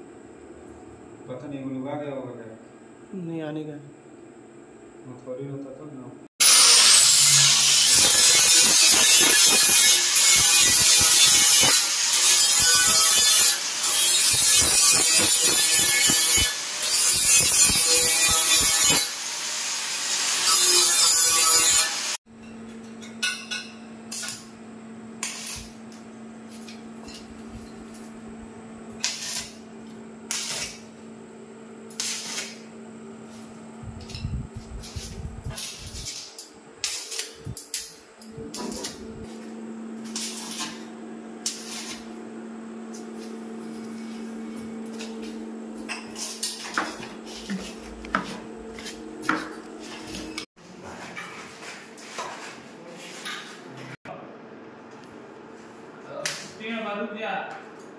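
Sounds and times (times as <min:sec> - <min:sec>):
angle grinder grinding metal: 0:06.4 - 0:22.2.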